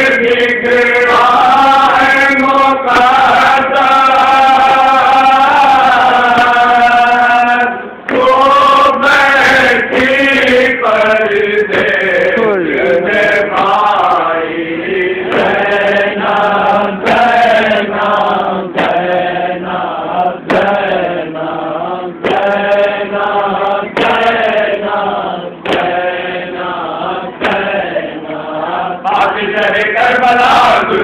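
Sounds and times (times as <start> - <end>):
men chanting a lament: 0.0 - 31.0.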